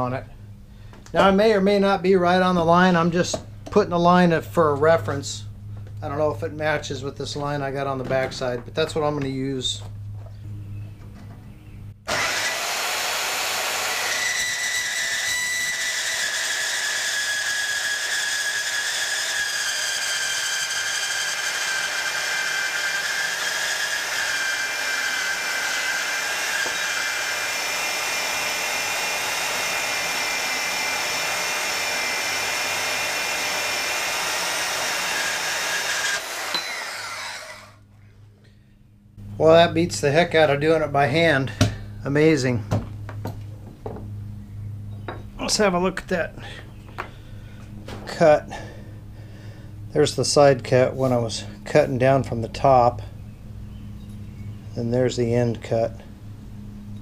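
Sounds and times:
bandsaw cutting steel: 12.1s - 37.8s
high ringing blade tones: 36.5s - 36.9s.

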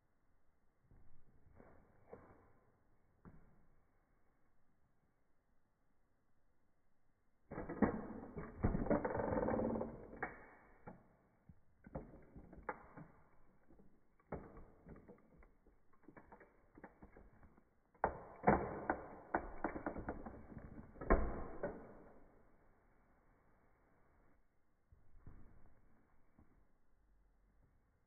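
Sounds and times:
toy car creaking and cracking: 7.6s - 22.0s.

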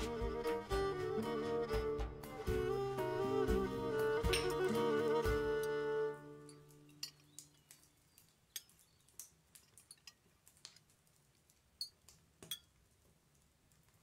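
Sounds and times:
music chord: 0.0s - 6.8s.

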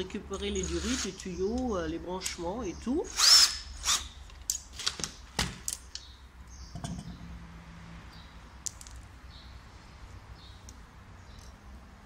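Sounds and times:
cordless drill running: 0.6s - 1.2s, 3.1s - 4.1s.

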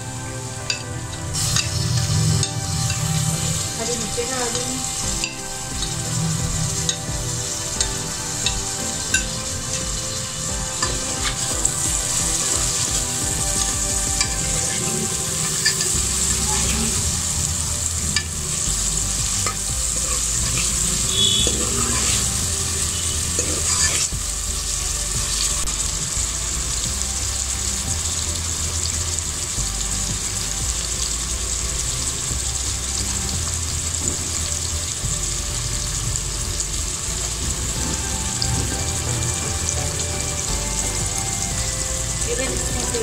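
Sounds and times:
vegetables sizzling in hot oil: 0.0s - 43.0s
ladle scraping pot: 13.6s - 17.0s, 19.4s - 24.1s.

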